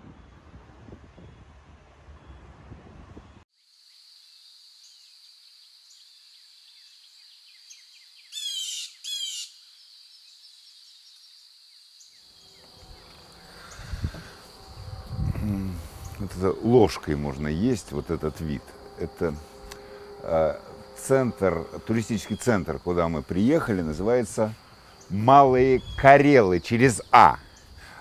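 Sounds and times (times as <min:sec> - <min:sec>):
wind buffeting microphone: 0:00.0 - 0:03.4, 0:12.7 - 0:26.6
high insect drone: 0:03.5 - 0:28.0
bird calls with falling notes: 0:05.9 - 0:27.9.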